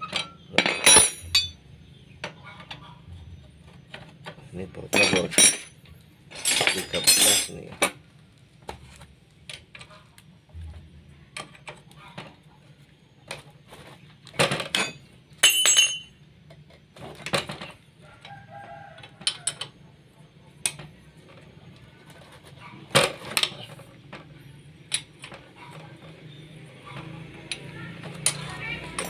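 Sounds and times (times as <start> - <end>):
metal tools clinking and knocking: 0.0 - 8.0, 14.4 - 16.2, 19.0 - 19.8, 20.6 - 26.2, 26.9 - 29.0.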